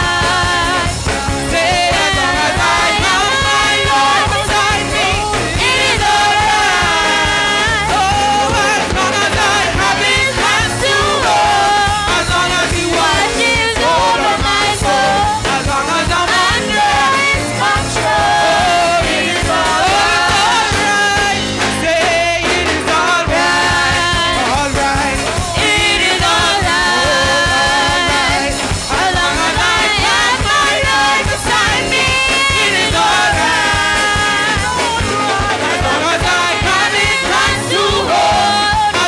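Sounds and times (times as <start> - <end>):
band with drum kit: 0.0 - 39.0
person singing into a microphone: 0.0 - 39.0.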